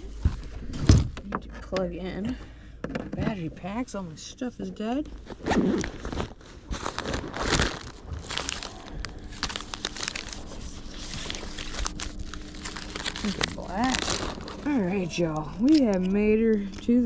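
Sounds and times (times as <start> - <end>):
plastic packets crinkling: 5.2 - 17.0.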